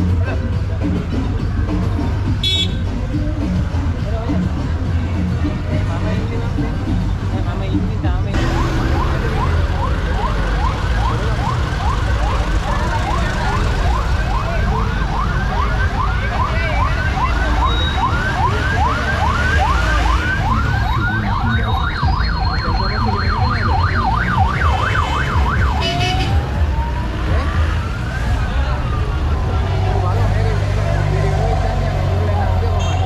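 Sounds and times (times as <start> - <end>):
electronic vehicle siren: 8.4 - 29.6.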